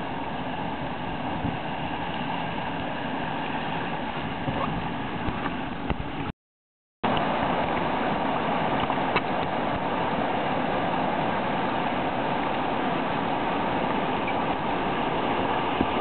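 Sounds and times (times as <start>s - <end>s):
whitewater rapids rushing: 7.1s - 16.0s.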